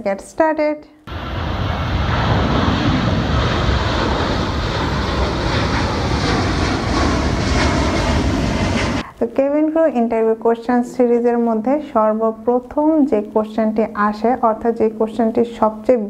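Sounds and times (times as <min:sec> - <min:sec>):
jet airliner taking off: 0:01.1 - 0:09.1.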